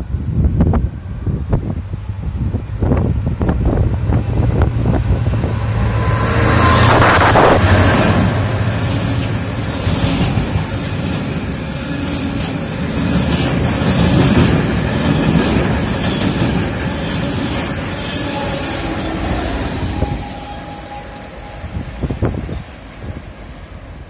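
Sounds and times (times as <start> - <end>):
diesel locomotive passing: 0.0 - 24.0.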